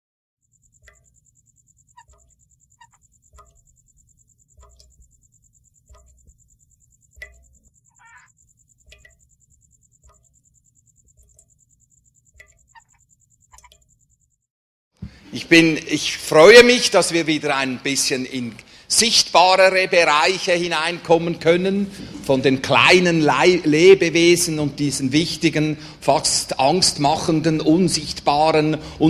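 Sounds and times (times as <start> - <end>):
short animal calls: 1.9 - 3.1, 7.9 - 8.4, 12.5 - 13.8.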